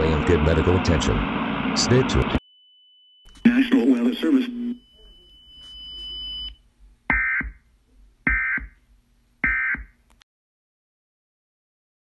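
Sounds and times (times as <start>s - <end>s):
warbling digital data tones: 2.7s - 7.6s.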